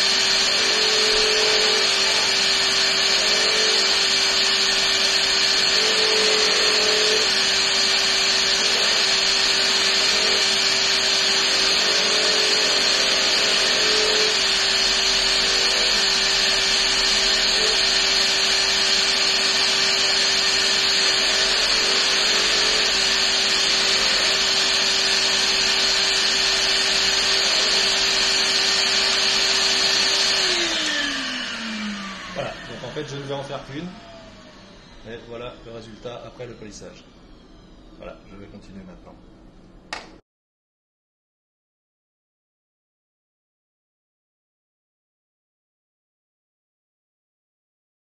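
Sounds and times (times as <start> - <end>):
polishing machine whirring: 0.0 - 36.8.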